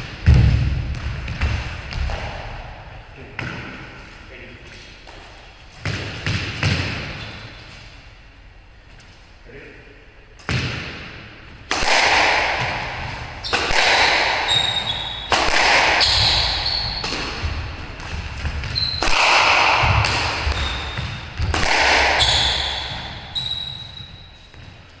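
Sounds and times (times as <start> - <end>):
squash ball cracking off rackets: 10.4 - 23.6
shoes squeaking on wooden floor: 14.4 - 15.4, 16.0 - 19.1, 20.4 - 25.0.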